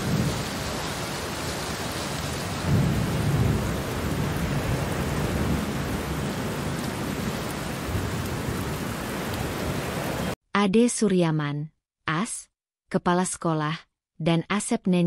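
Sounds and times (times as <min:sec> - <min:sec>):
low rolling thunder: 0:00.0 - 0:10.3
steady rain: 0:00.0 - 0:10.4.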